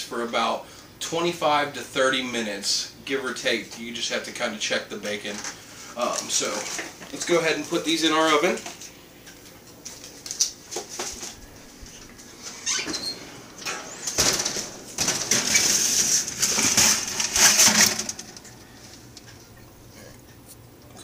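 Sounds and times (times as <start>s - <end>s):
aluminium foil crinkling: 9.3s - 12.1s, 14.1s - 19.5s
tray scraping on oven rack: 12.4s - 18.6s.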